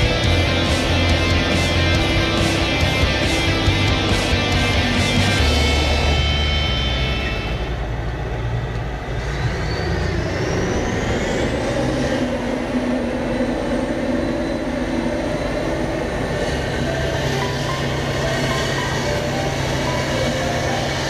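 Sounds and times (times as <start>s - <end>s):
music: 0.0s - 7.9s, 16.5s - 21.0s
faint high whine: 0.0s - 11.6s
tractors pulling trailers: 0.0s - 21.0s.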